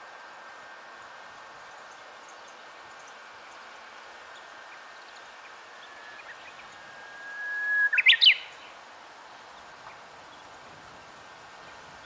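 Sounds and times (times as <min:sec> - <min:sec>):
bird whistling song: 0:05.8 - 0:08.7.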